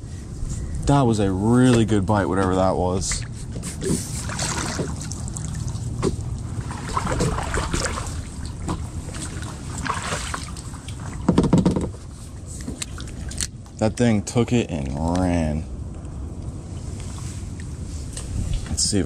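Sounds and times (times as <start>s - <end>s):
steady low rumble: 0.0s - 11.3s, 11.9s - 19.0s
water trickling off paddle: 3.0s - 13.5s
paddle splashing in water: 3.1s - 13.4s.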